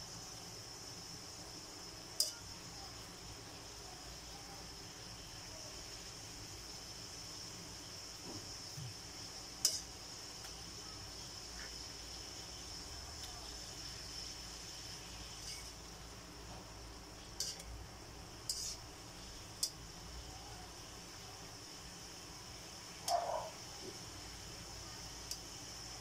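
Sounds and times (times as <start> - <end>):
high-pitched hiss: 0.0 - 26.0
metal tongs clinking on wok: 9.6 - 9.9, 17.4 - 17.7, 18.4 - 18.8.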